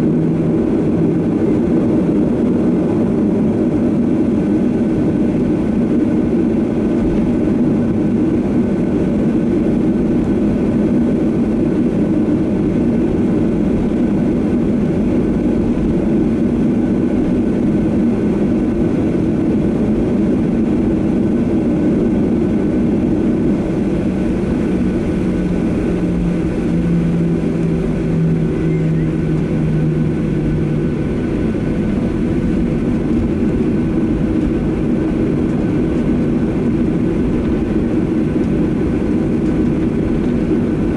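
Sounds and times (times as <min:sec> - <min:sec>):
jet engines humming: 0:00.0 - 0:40.9
low tone: 0:22.8 - 0:37.4.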